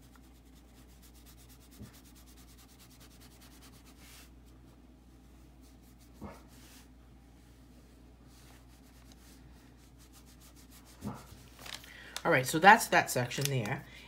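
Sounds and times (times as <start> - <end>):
marker scratching on paper: 0.0 - 4.3.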